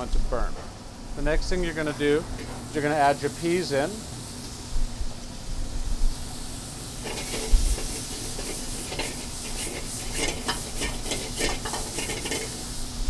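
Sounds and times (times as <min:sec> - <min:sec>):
peas sizzling in a pan: 0:01.2 - 0:04.7, 0:05.3 - 0:13.0
peas rattling against metal pan: 0:07.0 - 0:12.6.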